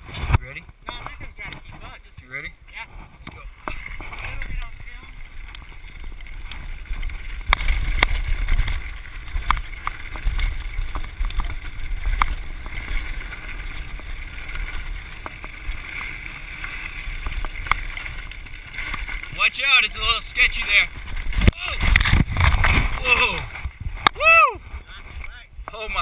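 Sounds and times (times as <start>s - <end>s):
bike tyres rumbling on gravel: 0.0s - 26.0s
wind buffeting microphone: 17.1s - 26.0s.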